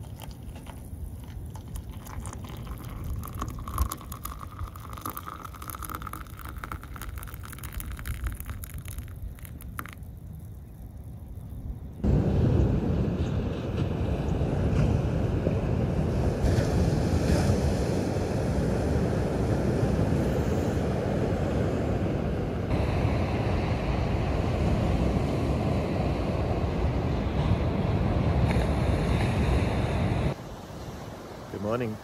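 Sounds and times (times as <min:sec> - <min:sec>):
wind rumbling on microphone: 0:00.0 - 0:31.5
ocean surf on beach: 0:12.0 - 0:32.0.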